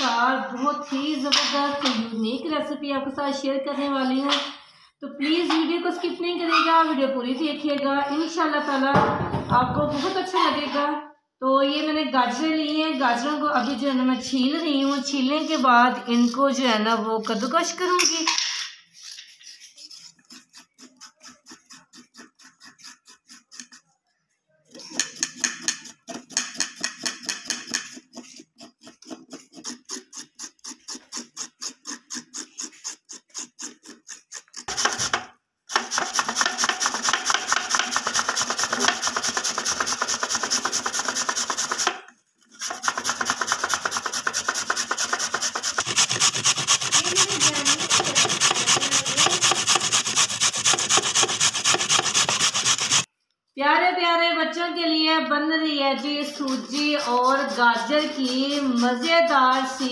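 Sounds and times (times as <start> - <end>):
knife scraping carrots: 12.4 - 23.9, 24.7 - 53.1, 56.0 - 59.9
carrots rasping on metal grater: 12.5 - 23.9, 24.8 - 53.1, 56.0 - 59.9.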